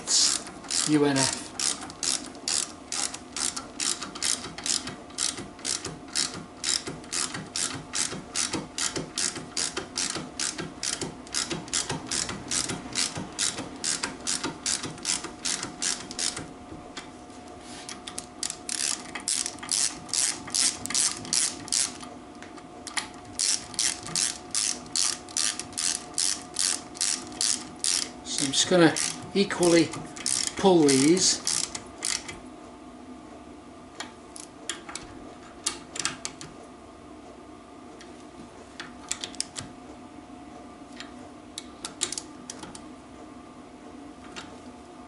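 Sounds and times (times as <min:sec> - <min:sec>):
socket ratchet clicking: 0:00.3 - 0:01.0, 0:01.6 - 0:16.5, 0:18.1 - 0:22.0, 0:22.9 - 0:28.1, 0:30.2 - 0:32.4.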